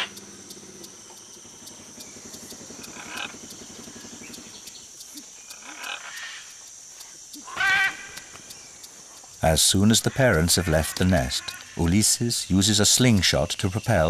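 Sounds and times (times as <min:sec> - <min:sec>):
faint ticking: 0:00.0 - 0:14.0
high-pitched hiss: 0:00.0 - 0:14.0
raspy macaw calls: 0:02.8 - 0:04.0, 0:05.5 - 0:06.5, 0:07.4 - 0:08.2.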